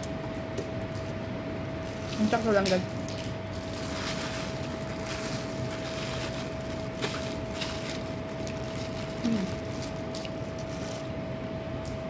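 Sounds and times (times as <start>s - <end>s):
background hum and hiss: 0.0s - 12.0s
voice-like murmur: 9.2s - 9.6s.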